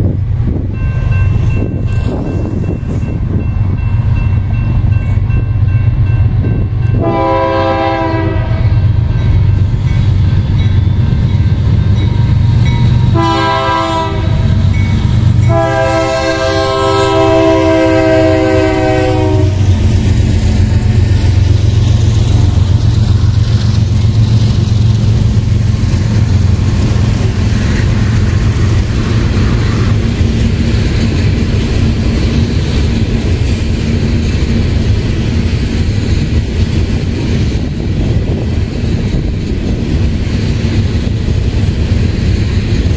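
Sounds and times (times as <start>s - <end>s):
freight train rolling past: 0.0s - 42.9s
train horn blasts: 6.8s - 9.0s, 13.0s - 14.8s, 15.4s - 19.7s.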